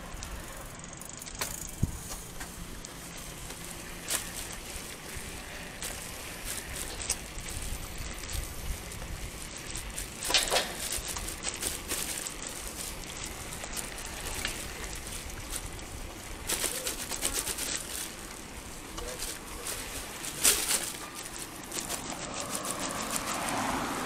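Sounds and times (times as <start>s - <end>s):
road noise of riding: 0.0s - 24.0s
wind rumbling on microphone: 1.6s - 2.9s, 3.8s - 17.5s.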